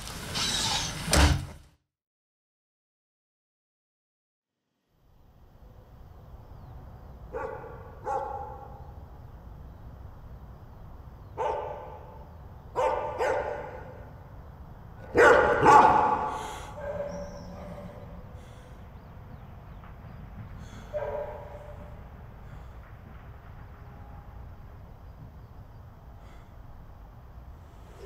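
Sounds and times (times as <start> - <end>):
dog barking: 7.3 - 8.9, 11.4 - 14.1, 15.0 - 18.3, 20.9 - 22.0.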